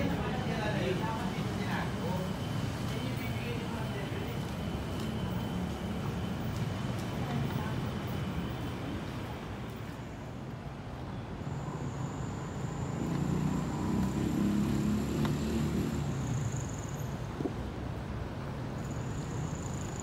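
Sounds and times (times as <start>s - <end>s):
road traffic noise: 0.0s - 20.0s
vehicle passing: 11.8s - 16.8s.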